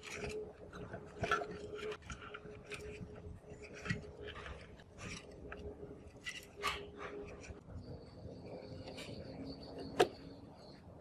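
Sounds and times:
metal scraping against wood: 0.0s - 7.9s.

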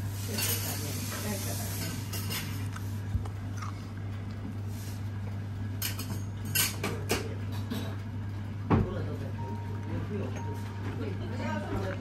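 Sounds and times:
utensils clinking on plates: 0.2s - 2.6s, 5.8s - 8.0s.

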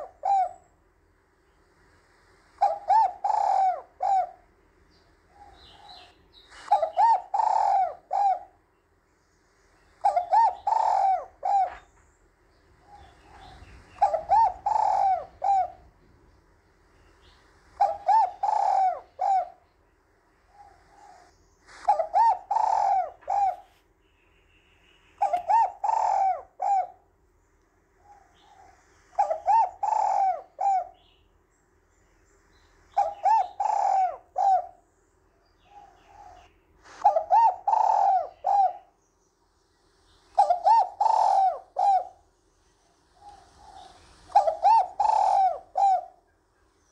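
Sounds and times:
dove cooing: 0.0s - 0.8s, 2.6s - 4.6s, 5.3s - 8.6s, 10.0s - 12.0s, 12.7s - 16.3s, 17.1s - 19.7s, 20.5s - 23.8s, 25.2s - 27.1s, 28.0s - 31.2s, 32.9s - 34.9s, 35.6s - 39.0s, 40.4s - 46.3s
faint steady hum: 0.0s - 46.9s.

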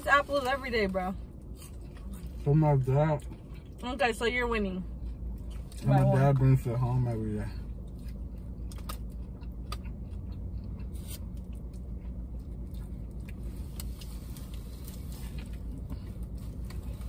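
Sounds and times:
low hum inside a car: 0.0s - 17.0s.

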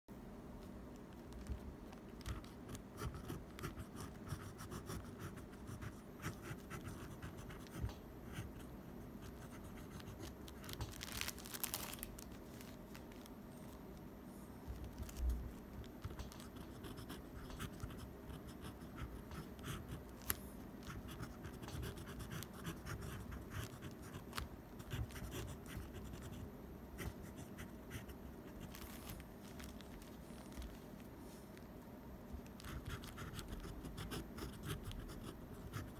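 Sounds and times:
pen nib scratching on paper: 2.2s - 10.2s, 16.0s - 26.4s, 32.6s - 35.9s.

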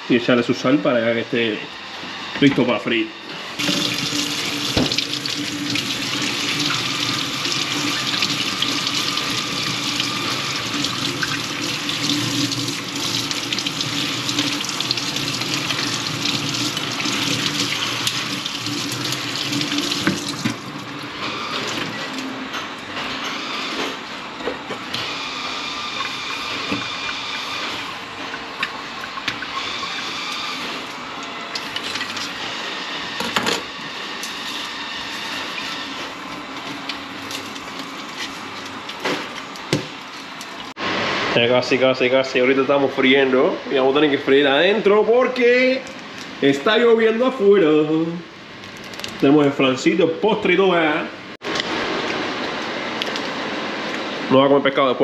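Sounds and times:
tap water running into sink: 3.6s - 21.0s.

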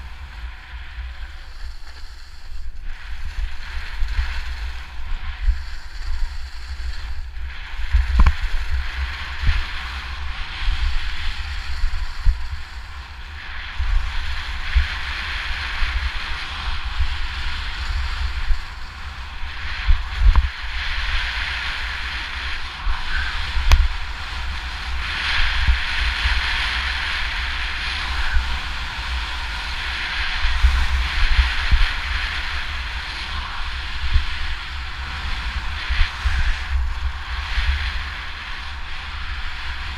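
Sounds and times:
skis scraping over snow: 0.0s - 39.9s
wind buffeting microphone: 0.0s - 39.9s.

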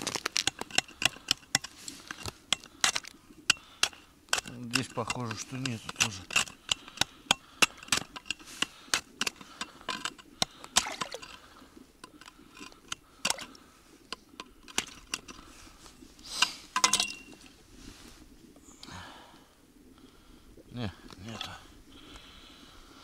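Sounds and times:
ice chisel striking ice: 0.0s - 9.4s
broken ice clinking: 16.8s - 17.4s.

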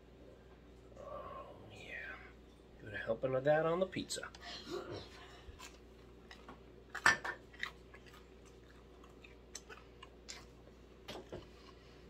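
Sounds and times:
chewing with wet mouth clicks: 5.6s - 11.8s.

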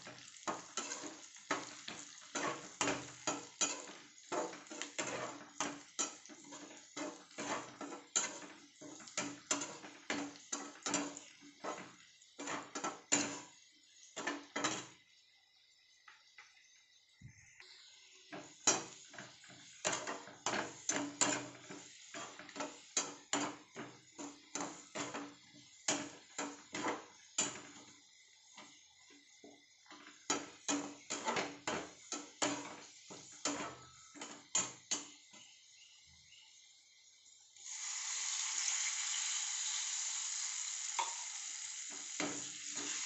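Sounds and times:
spatula scraping metal pan: 0.1s - 15.0s, 17.9s - 27.9s, 30.0s - 35.2s.

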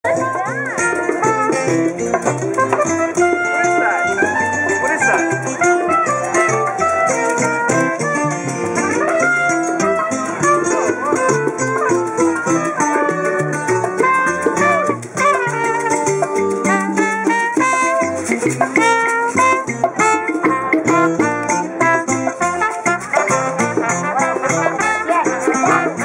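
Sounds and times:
bass line: 0.0s - 18.8s
acoustic guitar strumming: 0.1s - 26.0s
maracas shaking: 0.1s - 26.0s.

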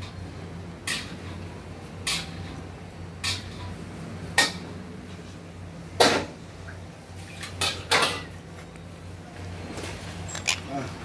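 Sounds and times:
hard objects clinking: 10.3s - 10.7s.

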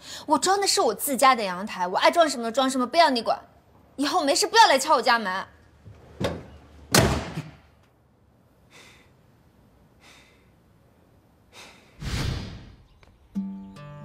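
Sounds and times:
door slamming: 6.2s - 7.6s
man breathing faintly: 8.6s - 10.8s, 11.4s - 12.0s.

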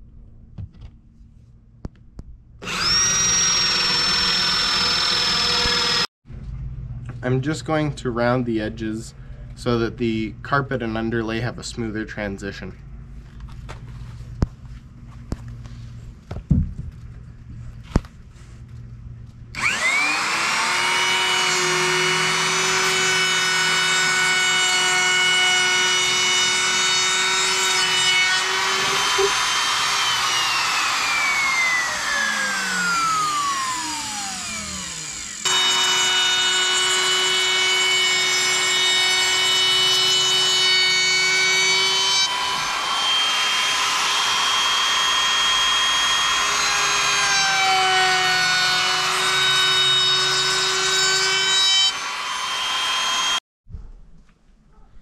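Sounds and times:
electric router motor whining: 2.6s - 6.1s, 19.5s - 53.4s.

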